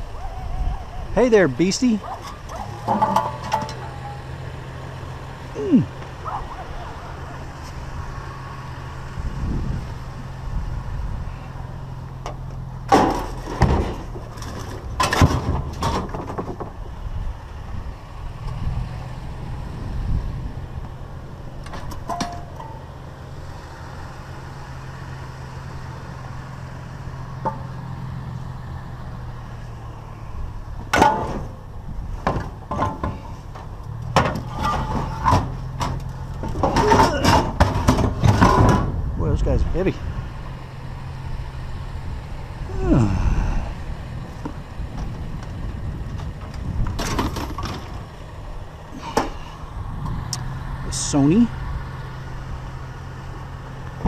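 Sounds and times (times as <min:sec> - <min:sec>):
vehicle engine idling: 0:00.0 - 0:54.0
metal exhaust pipes clanking: 0:01.2 - 0:07.8, 0:11.3 - 0:17.0, 0:20.8 - 0:23.5, 0:27.0 - 0:40.4, 0:42.8 - 0:54.0.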